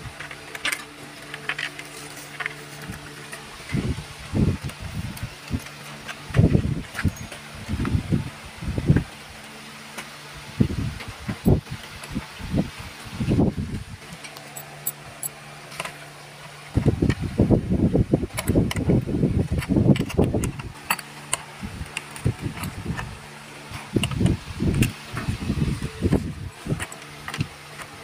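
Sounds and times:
small metal clicks and clinks: 6.9s - 7.4s, 14.2s - 15.4s.

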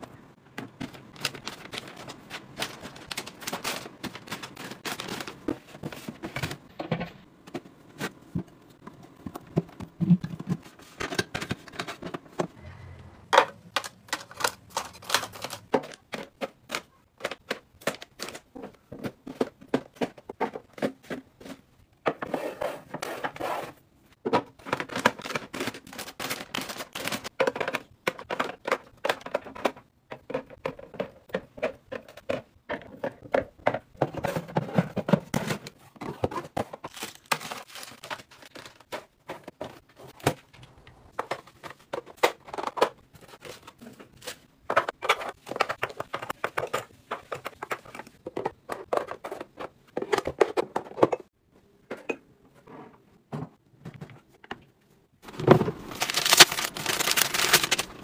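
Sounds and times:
plastic bins being handled: 0.0s - 58.0s
packaging crinkling: 0.8s - 6.2s, 13.7s - 18.4s, 24.8s - 27.3s, 36.9s - 39.1s, 55.3s - 58.0s.

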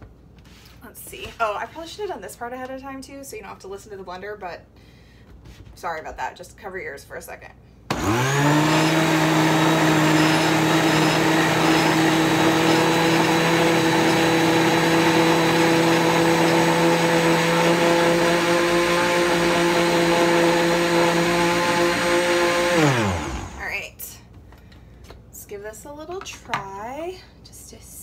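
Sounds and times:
blender motor whine: 7.9s - 23.8s.

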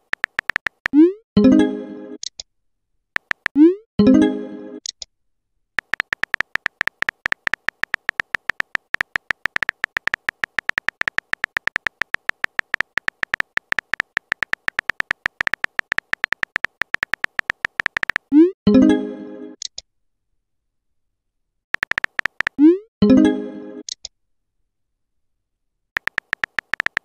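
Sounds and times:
electronic typing ticks: 0.0s - 1.2s, 3.2s - 3.7s, 5.8s - 18.5s, 21.7s - 22.8s, 26.0s - 27.0s.

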